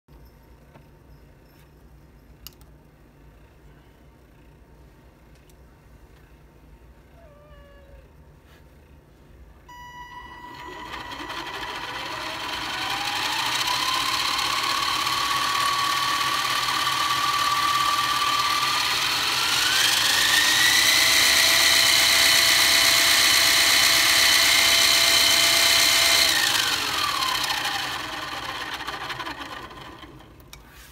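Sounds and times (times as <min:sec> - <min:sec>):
electric motor whine: 0:09.7 - 0:30.3.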